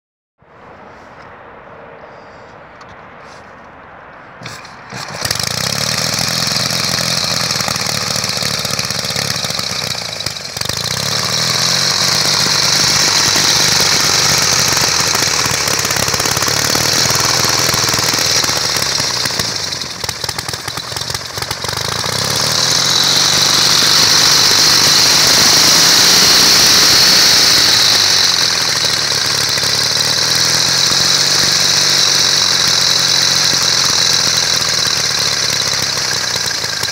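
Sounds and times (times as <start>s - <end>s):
motorcycle engine running: 4.4s - 36.9s.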